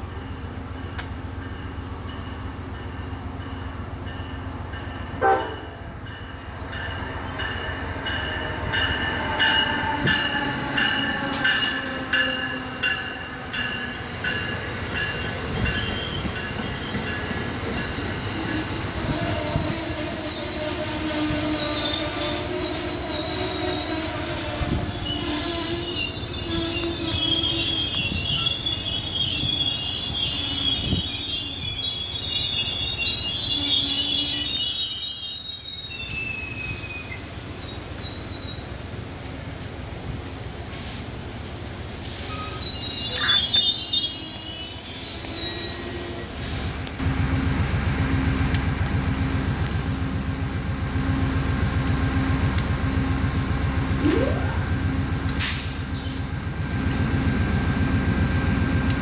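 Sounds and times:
train rumbling on rails: 0.0 - 59.0
steel wheels squealing on rail: 0.1 - 39.0, 41.9 - 47.0, 55.3 - 56.5.

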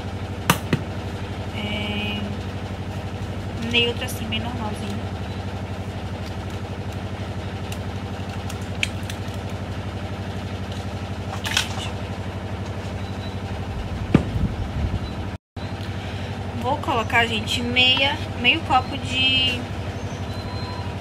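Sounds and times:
low pulsing mechanical hum: 0.0 - 21.0
thump: 14.1 - 14.4.

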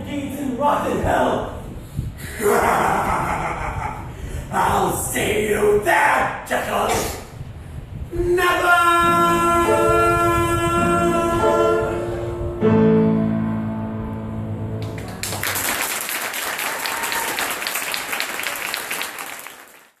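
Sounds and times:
piano: 0.0 - 3.2, 8.0 - 17.8
man singing: 8.1 - 12.4
audience applause: 14.8 - 20.0.

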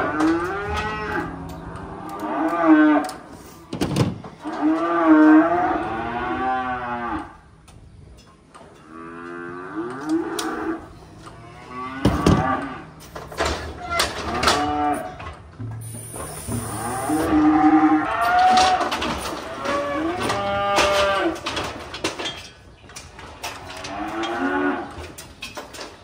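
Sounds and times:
calves mooing: 0.0 - 3.8, 8.8 - 15.3, 16.0 - 21.6
knocks and clanks of chute: 0.0 - 5.5, 11.2 - 26.0.

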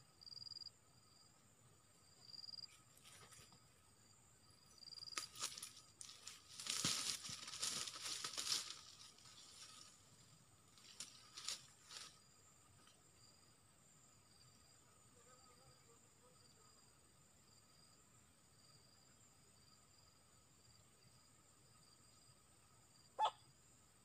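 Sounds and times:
insect drone: 0.0 - 24.0
rustling in dry leaves: 5.2 - 12.2.

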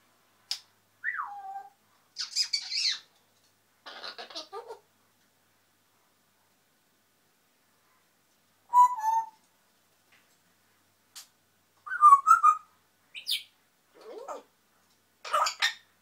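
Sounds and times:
parrot whistles and squeaks: 8.7 - 9.4, 11.9 - 13.5.

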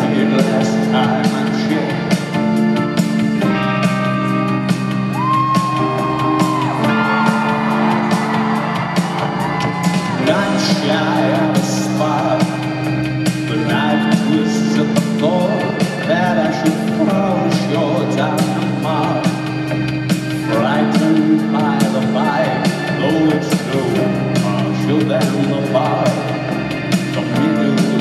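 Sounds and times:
person singing: 0.0 - 28.0
rock band playing live: 0.0 - 28.0
crowd whooping: 4.6 - 19.3, 20.5 - 27.9.

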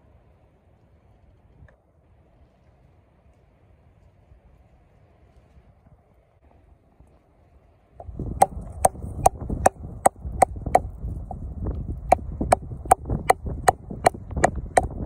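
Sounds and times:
low rumbling: 8.0 - 15.0
carving blade cutting wood: 12.1 - 15.0.

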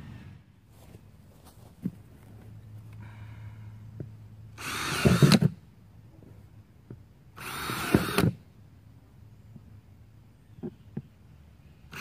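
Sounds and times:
cordless drill drilling plastic: 4.6 - 5.5, 7.4 - 8.4.

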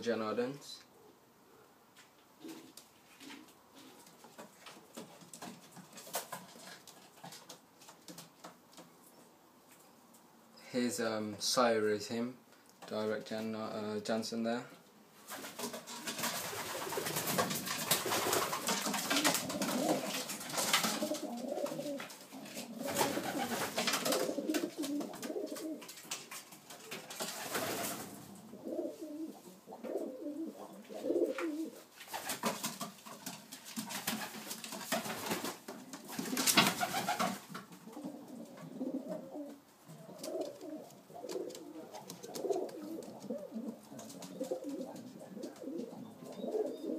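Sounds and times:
rustling noise: 1.9 - 10.3, 15.1 - 30.0, 30.6 - 46.4
pigeons cooing: 16.4 - 26.0, 26.8 - 31.8, 35.9 - 46.9.

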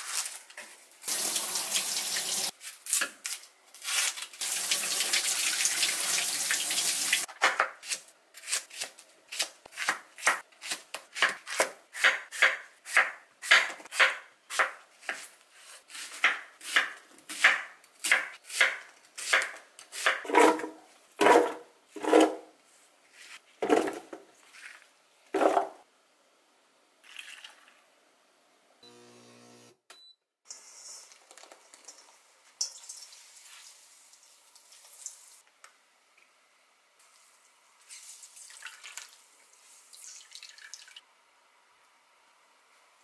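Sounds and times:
tap water running in sink: 1.0 - 2.5, 4.4 - 7.3
knife chopping on wooden board: 8.4 - 15.3, 15.9 - 22.3.

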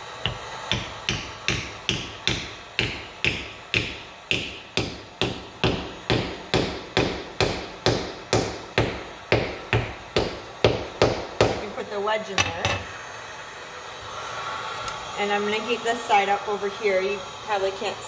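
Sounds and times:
hammer tapping a wedge: 0.2 - 11.6.

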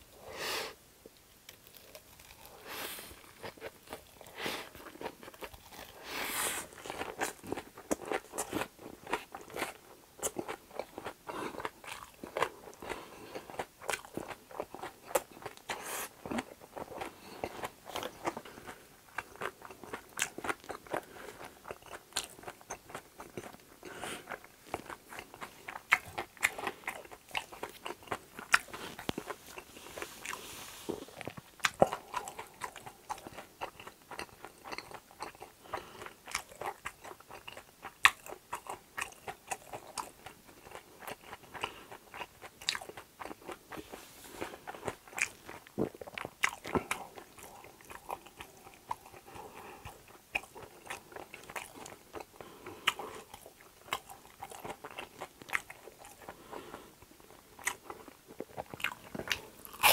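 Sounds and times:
person chewing crunchy food: 1.4 - 59.9.

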